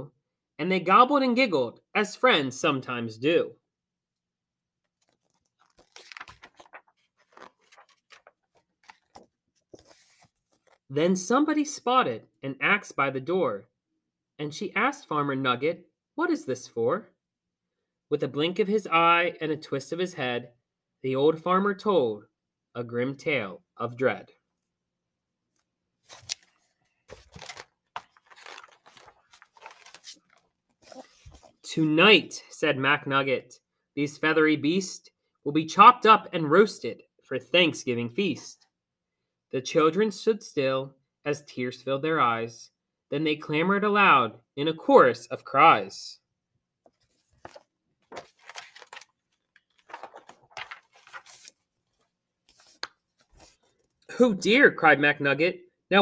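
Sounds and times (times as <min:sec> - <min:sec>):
book pages rustling: 0:04.9 - 0:10.9, 0:26.0 - 0:31.6, 0:46.8 - 0:54.0.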